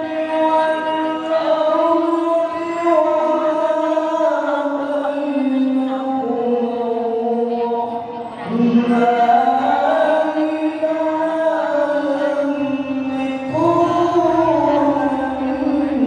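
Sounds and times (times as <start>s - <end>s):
man chanting into a microphone: 0.0s - 16.0s.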